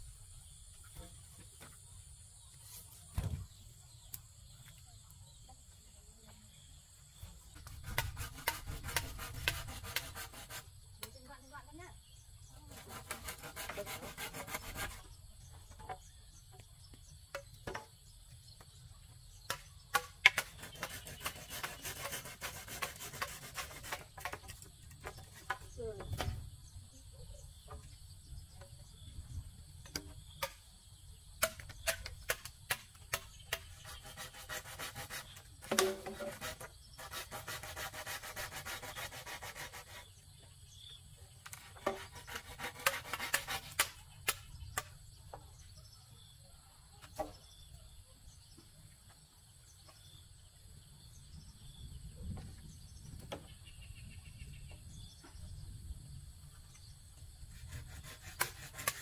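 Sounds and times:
scraping strokes on wood: 7.6 - 11.1, 12.6 - 16.1, 19.5 - 26.3, 31.4 - 40.2, 41.4 - 44.9, 57.5 - 59.0.

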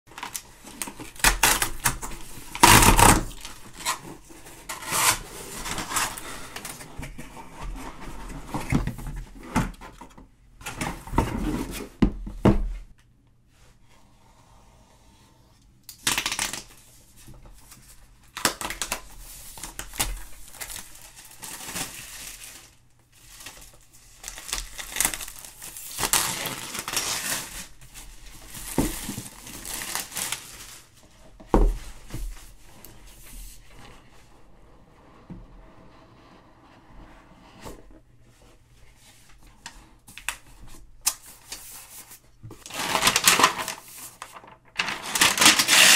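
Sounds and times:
cardboard rustling and tearing: 0.1 - 10.0, 18.4 - 31.0, 40.7 - 45.9.

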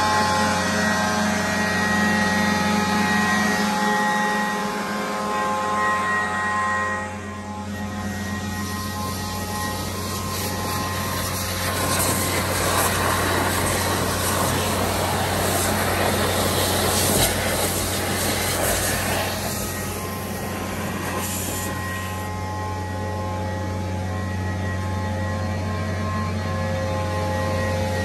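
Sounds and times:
vacuum excavator humming: 0.0 - 28.0.

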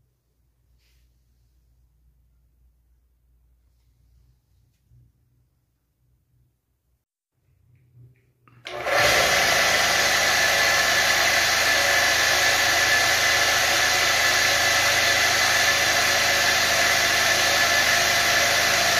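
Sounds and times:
air compressor whining: 8.6 - 18.9.

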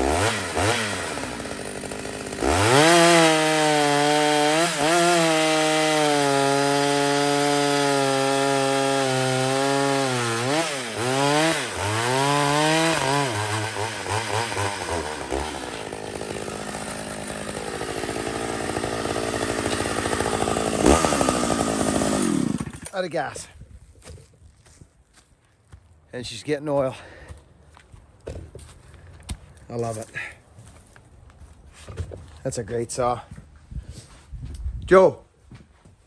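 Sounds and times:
chainsaw cutting log: 0.0 - 23.4.

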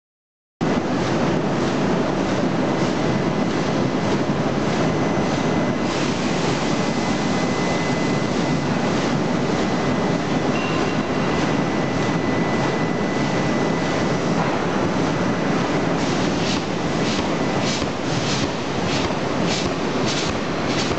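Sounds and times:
industrial machinery din: 0.6 - 20.9
thin high whine: 4.8 - 18.3.

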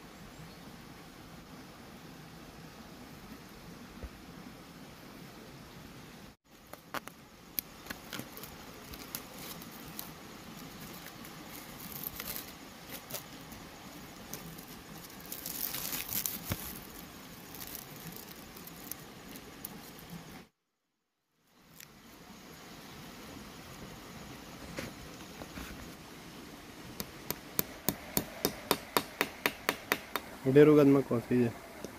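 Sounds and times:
plastic film crinkling and rustling: 7.8 - 13.6, 14.2 - 20.1.

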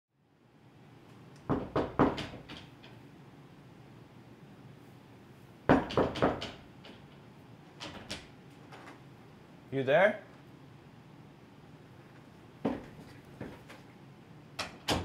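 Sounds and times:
knocking on wooden door: 1.5 - 2.6, 5.7 - 6.6.

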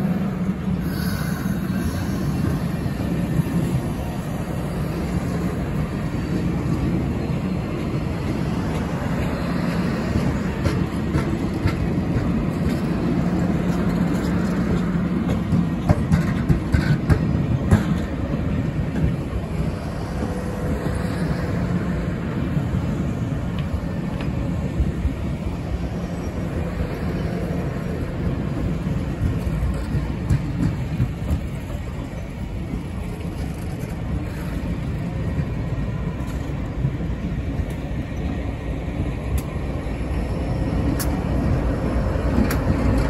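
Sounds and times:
train wheels rumbling on rail: 0.0 - 43.0.

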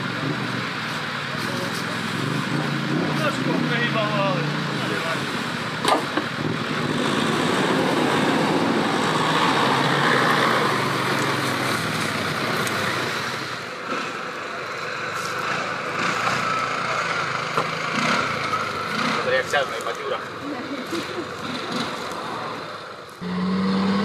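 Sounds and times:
off-road vehicle engine driving: 0.0 - 24.0.

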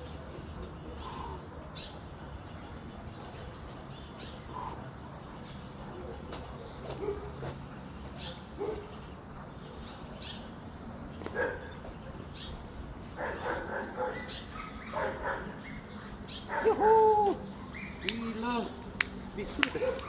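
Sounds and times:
dog barking: 7.0 - 7.4, 8.2 - 8.9, 11.4 - 11.7, 13.2 - 15.6, 16.5 - 16.8, 19.7 - 20.0.

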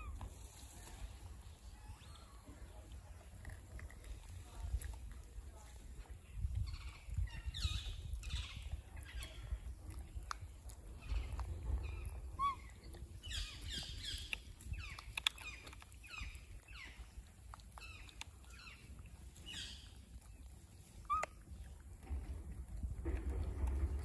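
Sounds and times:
low rumble: 0.0 - 14.9, 21.6 - 24.0
high-pitched animal chirps: 11.9 - 16.9, 21.0 - 21.4.

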